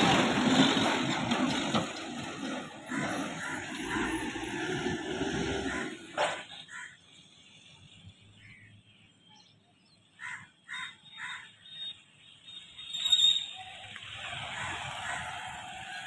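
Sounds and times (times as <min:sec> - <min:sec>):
motorcycle approaching: 0:00.0 - 0:06.1, 0:13.6 - 0:16.0.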